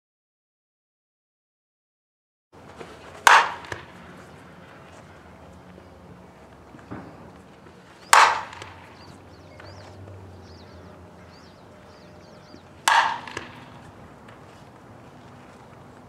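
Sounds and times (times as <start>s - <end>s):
bat cracking ball: 2.7s - 4.4s, 6.7s - 10.1s, 12.4s - 14.6s.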